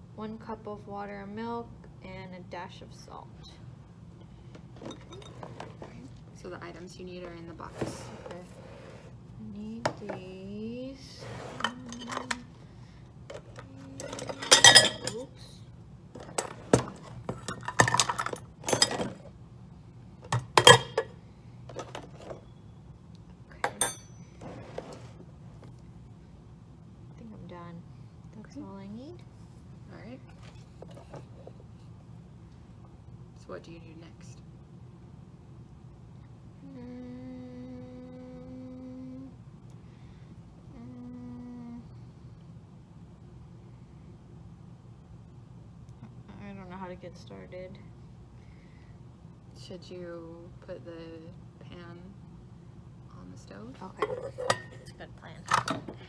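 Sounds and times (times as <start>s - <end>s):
woman humming: 13.6s - 14.2s, 36.6s - 39.4s, 40.6s - 42.1s
cookware clinks and knocks: 14.0s - 15.2s, 23.7s - 24.1s.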